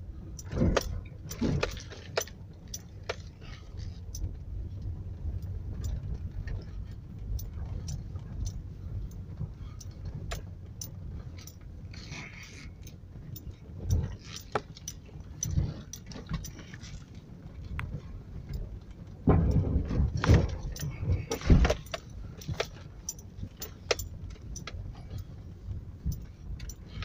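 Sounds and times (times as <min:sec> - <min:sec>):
vehicle thumping over ruts: 0:00.0 - 0:03.7, 0:17.6 - 0:26.0
vehicle engine and road rumble: 0:00.0 - 0:27.0
cabin rattles and clicks: 0:19.2 - 0:25.2.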